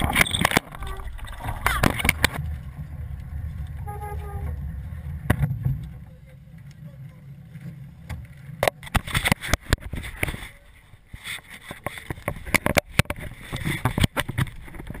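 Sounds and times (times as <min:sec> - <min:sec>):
low rumble: 0:00.0 - 0:11.1.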